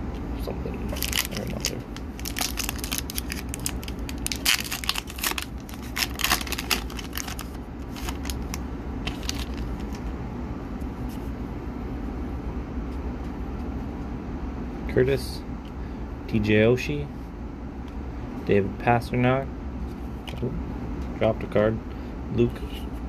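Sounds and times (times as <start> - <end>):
foil wrapper tearing and crinkling: 0.9 - 10.0.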